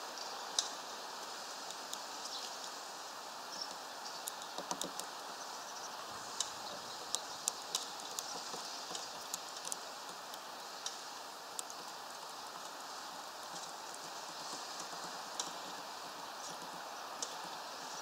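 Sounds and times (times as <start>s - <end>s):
steady hiss: 0.0s - 18.0s
bird tapping beak on branch: 4.2s - 5.2s, 6.3s - 11.8s.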